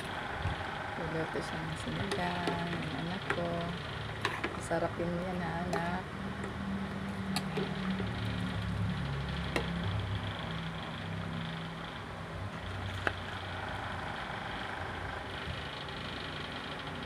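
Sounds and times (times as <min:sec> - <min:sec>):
low hum: 0:00.0 - 0:17.0
ladle stirring a pot: 0:01.8 - 0:04.8, 0:05.6 - 0:08.6.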